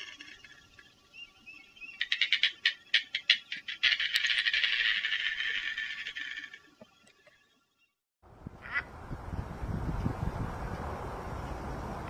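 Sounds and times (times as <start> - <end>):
bird rattling chatter: 0.0 - 0.7, 2.0 - 6.8.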